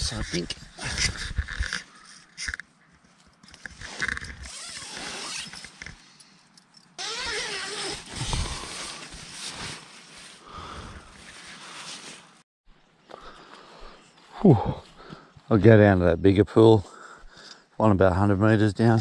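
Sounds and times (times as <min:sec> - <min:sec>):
tent fabric rustling: 0:03.6 - 0:05.8, 0:07.0 - 0:12.4
zipper: 0:03.6 - 0:05.9, 0:07.0 - 0:09.8.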